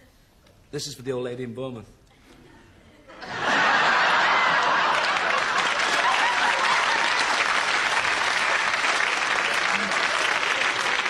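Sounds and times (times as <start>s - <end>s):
studio audience applause: 3.2s - 11.0s.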